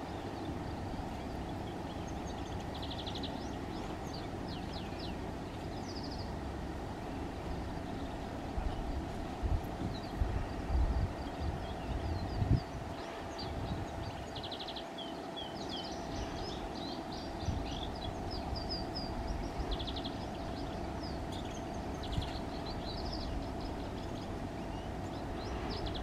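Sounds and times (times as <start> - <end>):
faint steady hum: 0.0 - 26.0
songbirds chirping and twittering: 0.0 - 26.0
steady low rumble: 0.0 - 26.0
rapid bird trill: 10.9 - 26.0.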